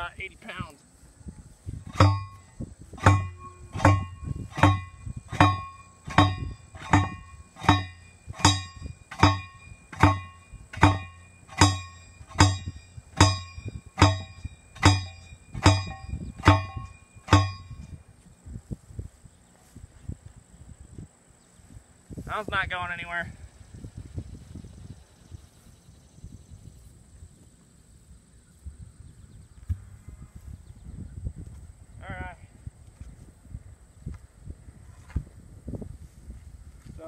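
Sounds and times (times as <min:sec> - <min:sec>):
post pounder clanging on fence post: 0:01.8 - 0:18.0.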